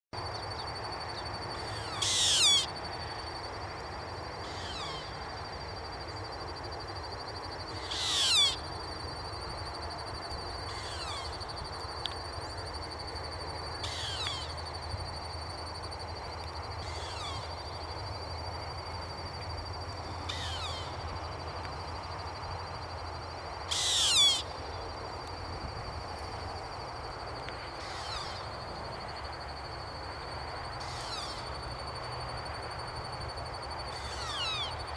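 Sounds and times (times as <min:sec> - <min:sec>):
owls screeching: 0:01.6 - 0:02.7, 0:07.8 - 0:08.6, 0:10.7 - 0:11.3, 0:13.8 - 0:14.5, 0:16.9 - 0:17.5, 0:20.3 - 0:20.9, 0:23.7 - 0:24.4.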